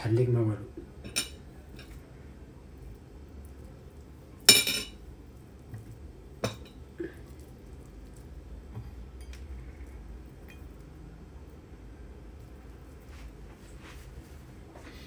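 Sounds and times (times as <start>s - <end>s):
utensils clinking on ceramic dishes: 4.5s - 5.0s.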